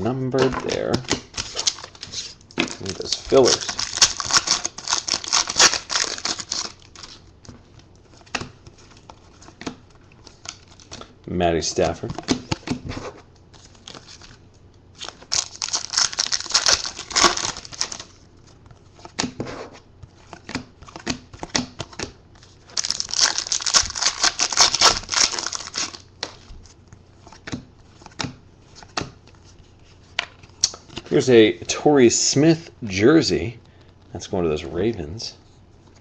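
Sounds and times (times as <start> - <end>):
foil wrapper crinkling: 1.4 - 7.2, 15.0 - 18.1, 22.7 - 26.3.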